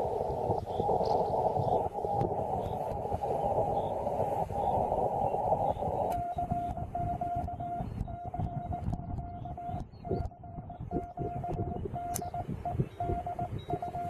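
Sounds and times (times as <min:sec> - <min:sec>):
radio receiver hiss: 0:00.0 - 0:14.0
morse code tone: 0:05.6 - 0:14.0.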